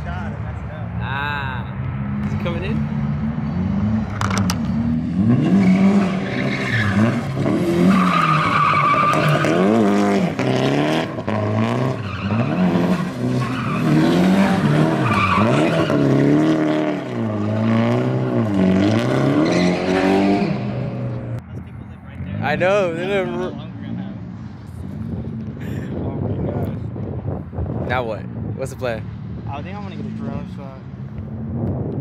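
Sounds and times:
car engine revving: 0:00.0 - 0:21.5, 0:27.6 - 0:32.0
tyres screeching: 0:05.4 - 0:10.1, 0:11.8 - 0:20.9.

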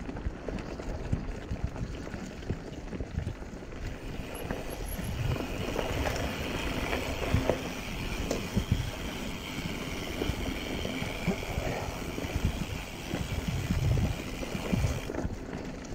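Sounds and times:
bike rattling over bumps: 0:00.0 - 0:15.9
bike tyres on dirt and leaves: 0:00.0 - 0:15.9.

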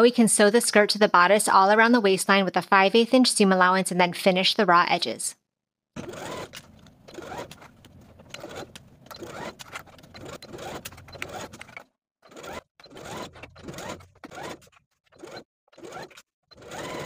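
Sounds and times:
sewing machine stitching: 0:06.0 - 0:17.0.

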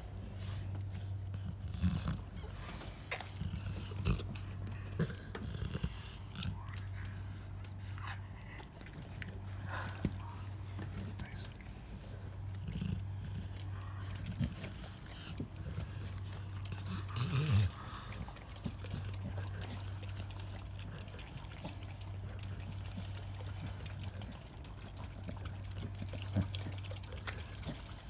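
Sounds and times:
low steady hum: 0:00.0 - 0:28.0
dog licking wet lapping: 0:13.4 - 0:28.0.

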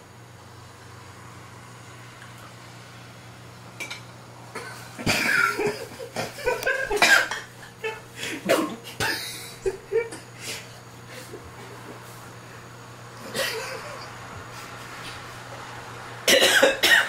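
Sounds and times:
man coughing and gagging: 0:04.6 - 0:10.3, 0:13.2 - 0:14.1, 0:16.3 - 0:17.0.

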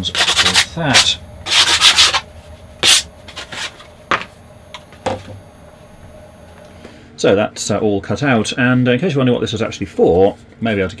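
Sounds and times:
hand pad rubbing wood board: 0:00.0 - 0:03.9.

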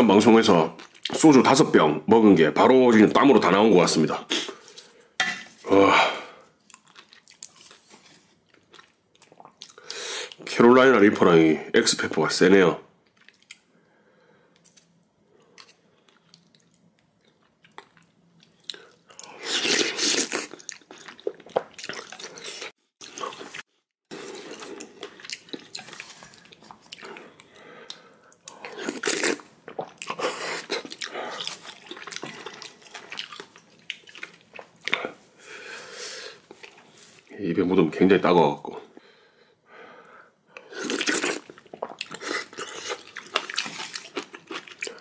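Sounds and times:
wet chewing: 0:06.6 - 0:10.0, 0:14.6 - 0:35.2, 0:40.6 - 0:45.0
slurping: 0:18.6 - 0:37.2.

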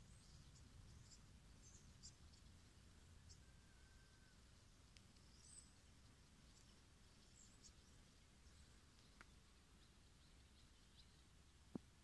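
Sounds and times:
faint click: 0:08.9 - 0:09.4.

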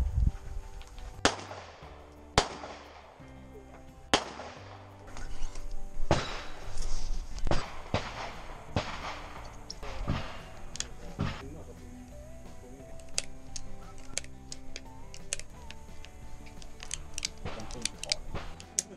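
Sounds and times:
background music with bass line: 0:00.0 - 0:18.9
sharp gunshot cracks: 0:01.2 - 0:03.2, 0:04.1 - 0:05.3, 0:06.0 - 0:11.4, 0:17.2 - 0:18.9.

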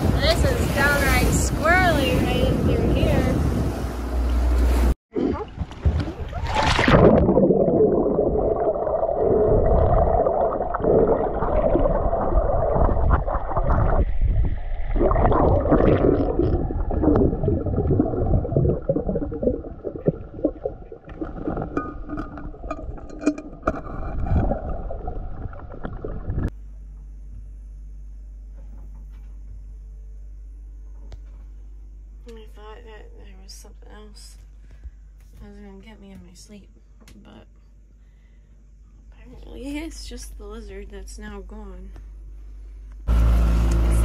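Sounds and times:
muffled underwater water rushing: 0:00.0 - 0:26.5
quiet steady hum: 0:05.2 - 0:43.1.

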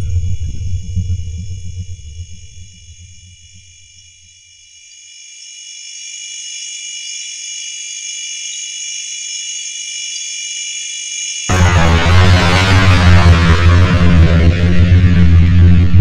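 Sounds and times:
high-pitched ringing drone: 0:00.0 - 0:14.6
loud bass-heavy music: 0:11.5 - 0:16.0.

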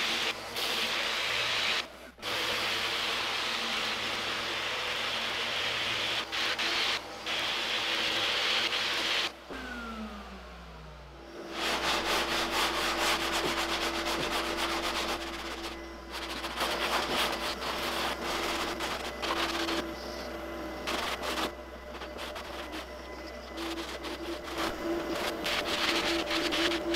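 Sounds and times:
dust extraction hum: 0:00.0 - 0:26.9
falling whine: 0:09.3 - 0:26.9
hand sanding strokes: 0:11.5 - 0:26.9.

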